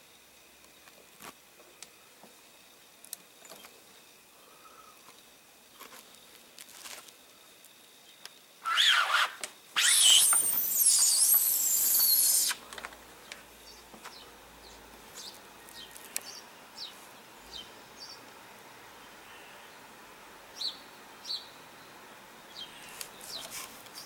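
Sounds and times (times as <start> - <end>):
faint bird chirps: 4.3 - 5.2.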